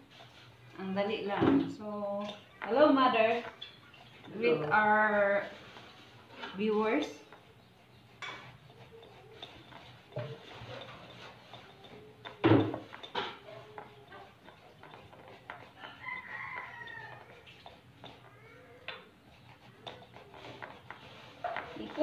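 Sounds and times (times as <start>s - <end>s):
grater rasping: 2.6s - 22.0s
rooster crowing: 15.8s - 17.5s.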